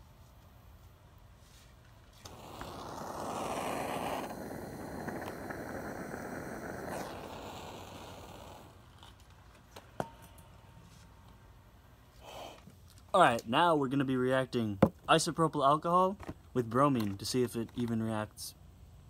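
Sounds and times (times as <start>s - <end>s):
torch lighter flame hissing: 2.2s - 9.2s.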